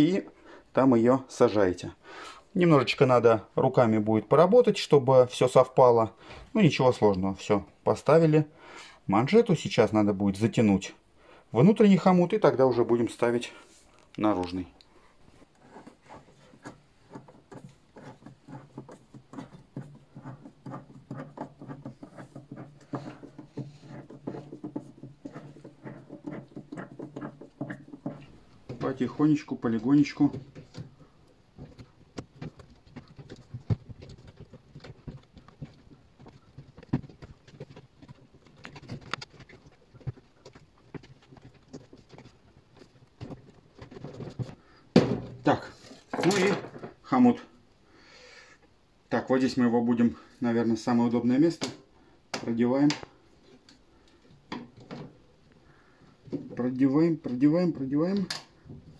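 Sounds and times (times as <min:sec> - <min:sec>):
hands tapping and rubbing rubber: 0:15.4 - 0:47.0.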